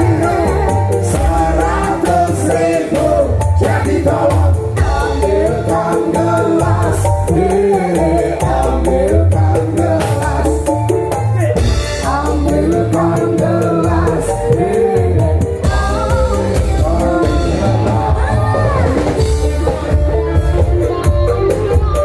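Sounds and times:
live band playing: 0:00.0 - 0:22.0
person singing: 0:00.0 - 0:22.0.

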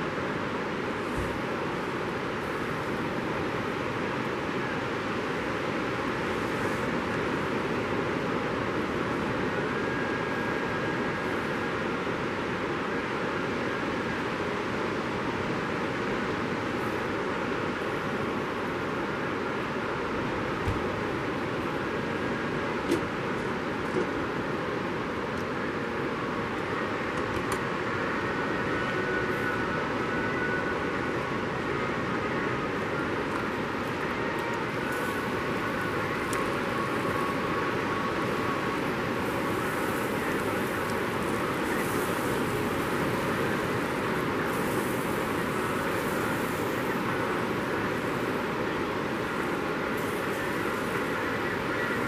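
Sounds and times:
ocean surf breaking: 0:14.0 - 0:52.0.

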